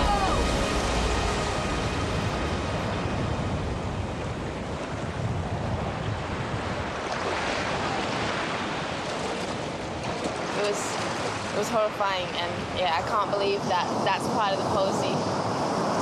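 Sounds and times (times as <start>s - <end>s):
surf breaking on beach: 0.0s - 11.9s
wind buffeting microphone: 0.0s - 16.0s.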